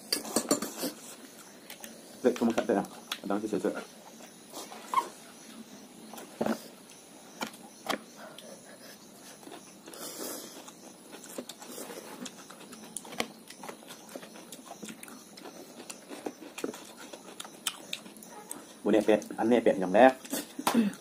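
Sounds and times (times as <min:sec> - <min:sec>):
food chewing: 0:09.2 - 0:19.4.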